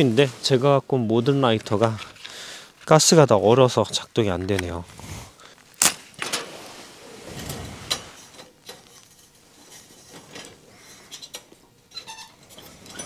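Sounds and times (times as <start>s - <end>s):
camping gear rustling: 0.0s - 3.0s.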